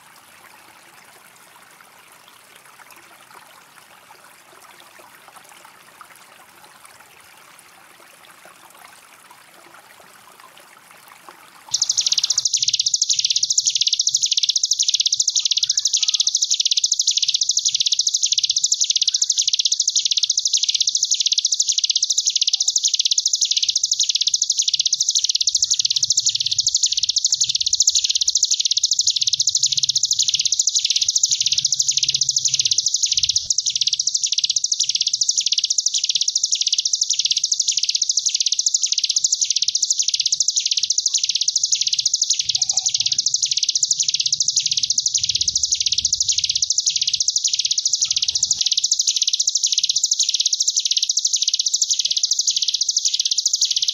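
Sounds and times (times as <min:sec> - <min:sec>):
bird buzzing trill: 0:11.8 - 0:53.9.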